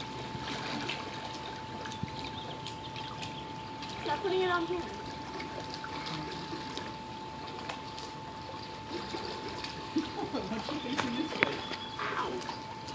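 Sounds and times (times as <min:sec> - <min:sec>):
pool water splashing: 0:00.0 - 0:12.9.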